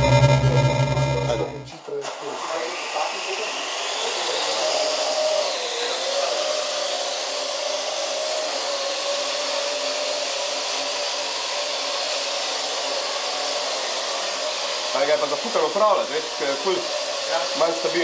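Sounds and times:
quadcopter propellers whirring: 0:02.0 - 0:18.0.

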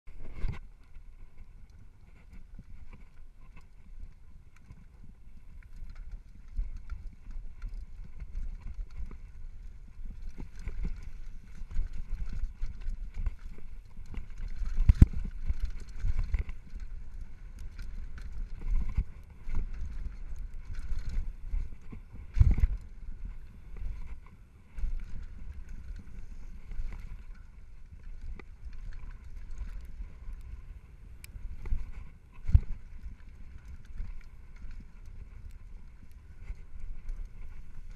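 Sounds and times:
mountain bike rattling on dirt trail: 0:00.1 - 0:37.9.

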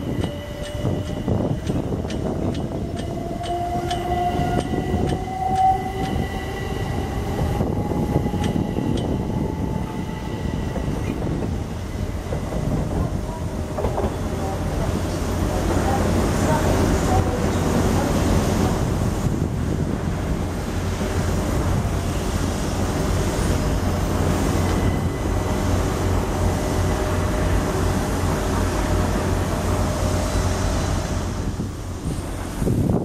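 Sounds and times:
electric train hum and rumble: 0:00.0 - 0:33.0.

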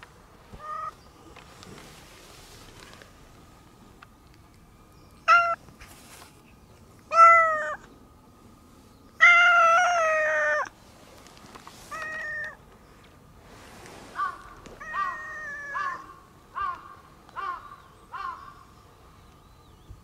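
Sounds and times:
cat meowing: 0:07.1 - 0:07.8.

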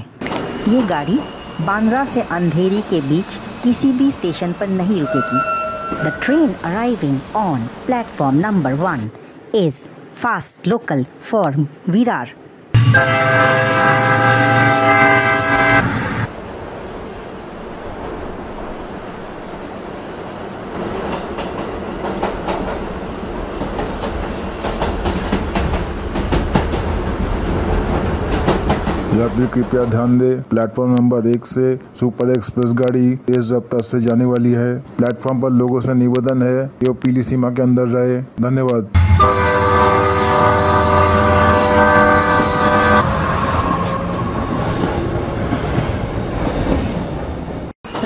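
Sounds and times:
train rumbling on rails: 0:00.0 - 0:10.1, 0:12.8 - 0:37.1, 0:39.0 - 0:48.0
train horn: 0:05.0 - 0:06.3, 0:12.8 - 0:16.3, 0:39.0 - 0:44.6.

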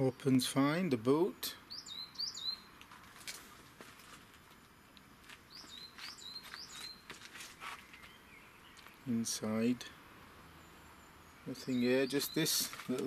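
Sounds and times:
small bird chirping: 0:01.7 - 0:02.9, 0:05.4 - 0:09.2, 0:10.5 - 0:13.0.

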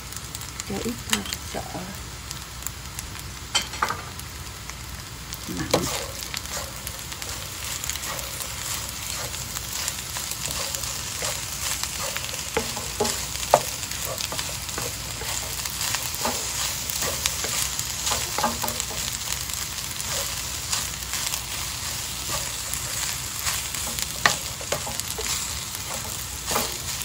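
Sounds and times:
rice sizzling in a pan: 0:00.0 - 0:27.0
wooden spatula stirring: 0:05.5 - 0:27.0.

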